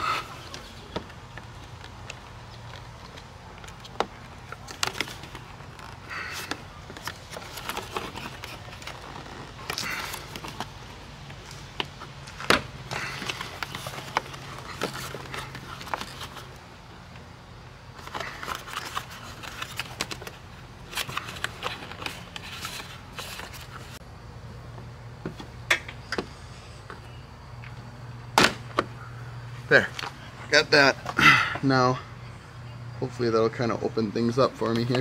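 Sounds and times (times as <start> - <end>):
plastic rubbing: 0.4 - 12.0, 12.9 - 16.6.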